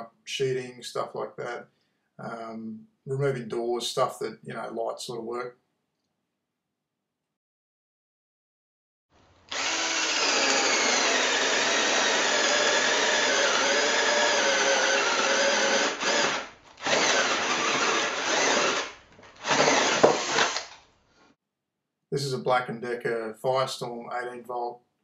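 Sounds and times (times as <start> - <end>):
cordless drill boring into wood: 9.5 - 20.8.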